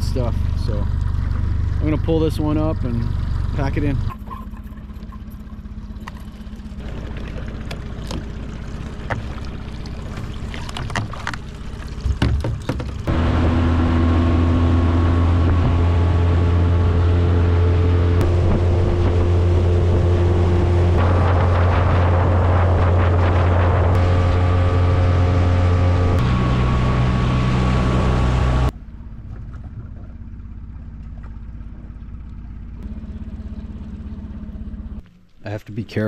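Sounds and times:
low hum: 0.0 - 36.0
outboard motor running: 0.0 - 36.0
wind: 0.0 - 36.0
water washing: 4.1 - 17.3.

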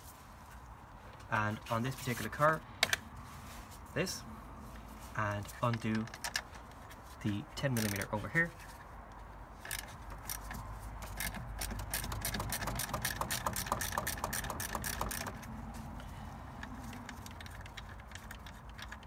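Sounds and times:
ratchet clicking rapidly: 7.7 - 8.1, 9.6 - 15.5.

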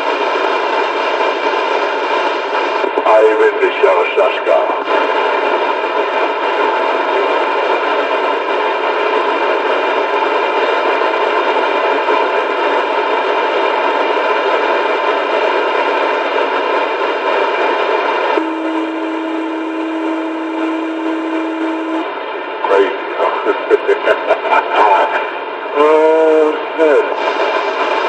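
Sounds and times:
loud steady hiss: 0.0 - 28.0.

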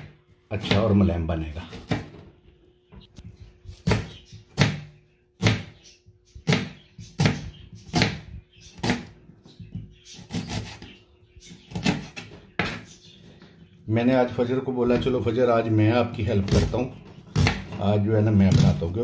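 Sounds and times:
knife chopping on cutting board: 1.7 - 2.1, 3.7 - 5.8, 6.4 - 10.9, 11.7 - 12.8, 17.3 - 17.8.

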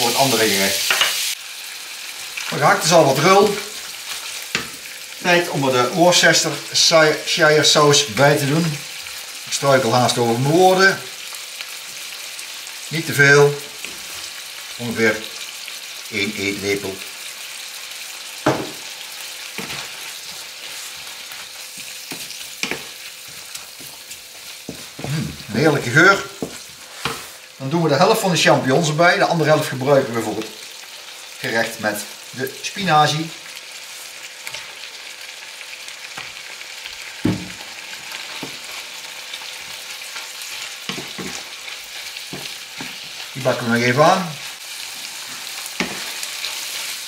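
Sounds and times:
meat and onions sizzling in pan: 0.0 - 47.0
spatula knocking on pan: 18.4 - 18.8, 22.1 - 22.9, 26.4 - 27.2
wooden spatula scraping pan: 19.6 - 25.5, 26.2 - 27.5.

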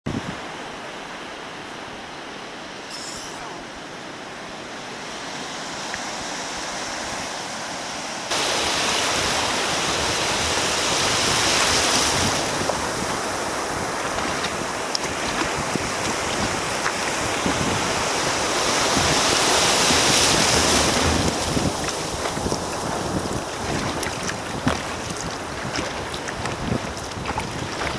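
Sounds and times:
waves breaking: 0.1 - 27.9
wind buffeting microphone: 8.3 - 27.9.

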